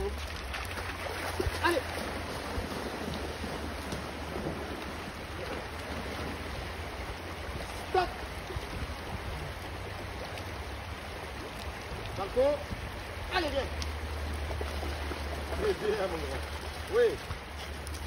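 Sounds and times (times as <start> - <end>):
river running over stones: 0.0 - 18.0
wind rumbling on microphone: 0.0 - 18.0.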